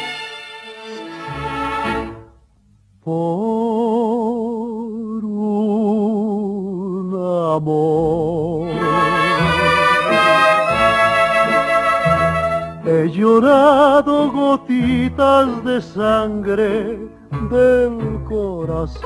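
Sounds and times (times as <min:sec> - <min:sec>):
instrumental accompaniment: 0:00.0 - 0:02.6, 0:08.6 - 0:13.8
person singing with vibrato: 0:03.0 - 0:19.0.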